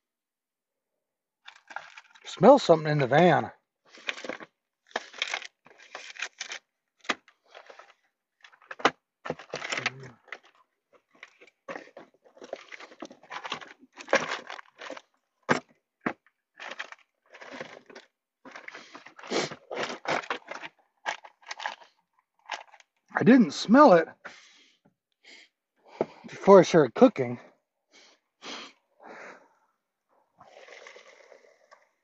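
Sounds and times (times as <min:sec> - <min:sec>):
rustling and crinkling: 0:01.4 - 0:02.3, 0:03.9 - 0:23.0.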